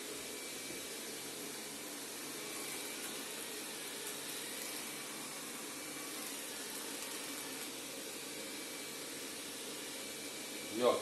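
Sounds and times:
robot vacuum hissing: 0.0s - 11.0s.

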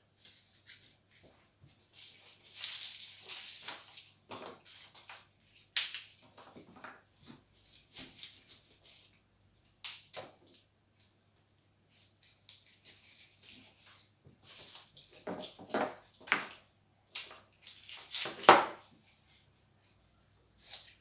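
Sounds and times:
leaves and stems rustling: 1.8s - 5.2s.

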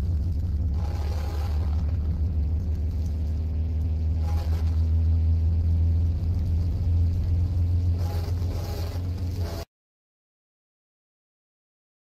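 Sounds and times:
distorted train horn: 0.5s - 6.0s, 7.8s - 9.7s.

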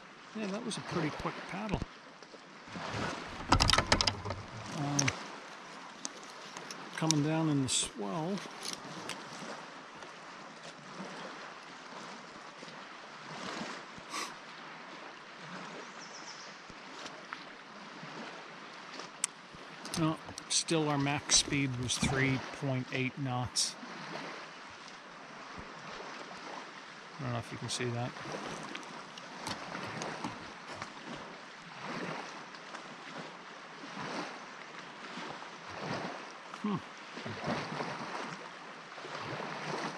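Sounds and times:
waves lapping against raft: 0.0s - 39.9s
water splash: 2.7s - 5.8s, 16.8s - 24.5s, 35.0s - 39.9s.

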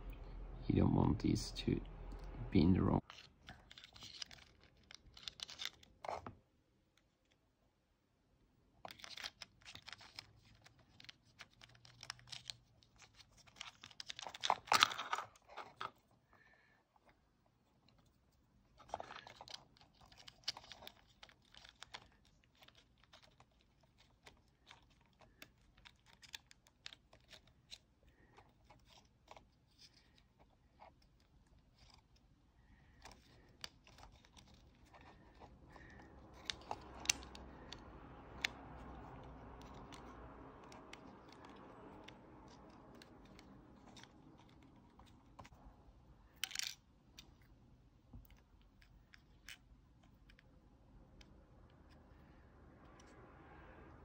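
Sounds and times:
plastic parts clicking: 3.1s - 6.3s, 32.9s - 45.6s, 46.3s - 47.5s
plastic clatter: 8.8s - 16.1s
soft rustle: 8.8s - 54.0s.

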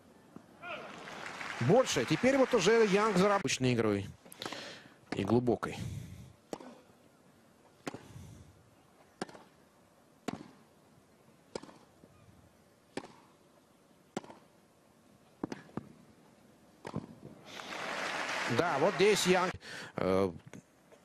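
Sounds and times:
tennis rackets hitting ball: 6.5s - 6.8s, 7.8s - 8.1s, 9.2s - 9.6s, 10.2s - 10.6s, 11.5s - 11.9s, 12.9s - 13.3s, 14.1s - 14.5s, 15.4s - 15.9s, 16.8s - 17.2s.

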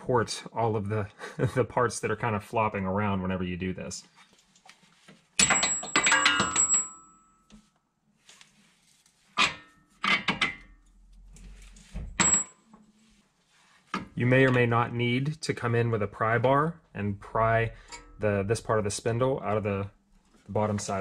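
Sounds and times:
metal suspension parts clanking: 5.4s - 7.0s, 17.8s - 18.2s.

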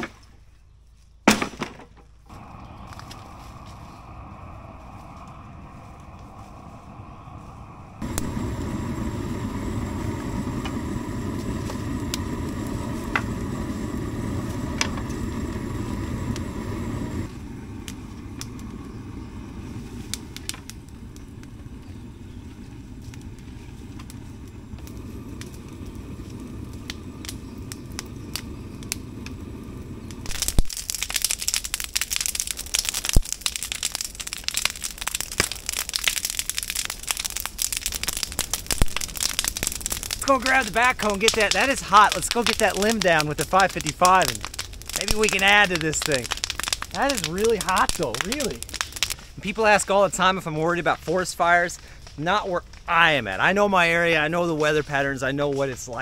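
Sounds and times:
engine running: 2.2s - 30.7s
brush fire crackling and popping: 2.2s - 56.0s
scattered clicks: 35.4s - 49.2s.

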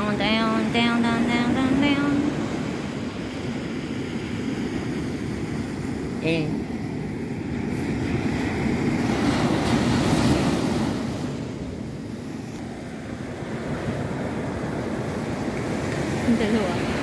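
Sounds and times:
ocean waves breaking on beach: 0.0s - 17.0s.

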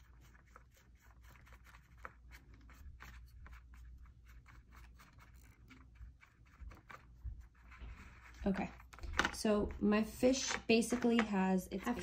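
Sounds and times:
paintbrush scratching plastic bottle: 0.0s - 12.0s.

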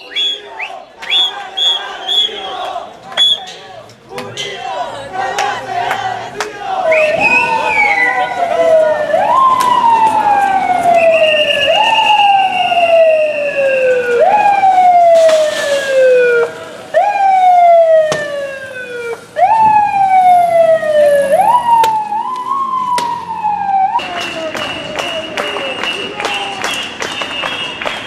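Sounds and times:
siren wailing: 7.0s - 25.4s.

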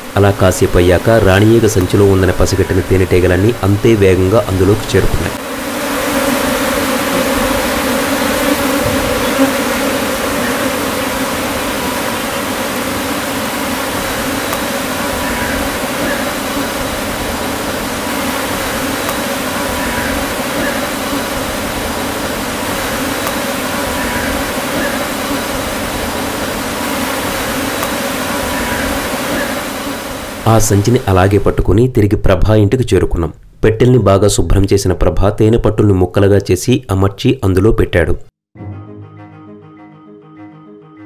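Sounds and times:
bees buzzing: 0.0s - 31.4s.

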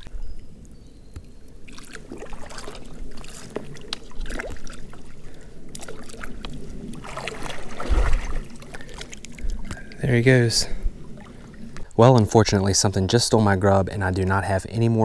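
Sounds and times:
creek water rippling over rocks: 0.0s - 12.8s
small water splashes: 1.6s - 10.0s.

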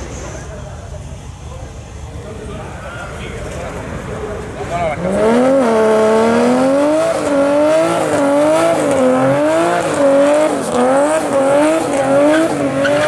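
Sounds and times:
engine at high revs: 4.8s - 13.0s.

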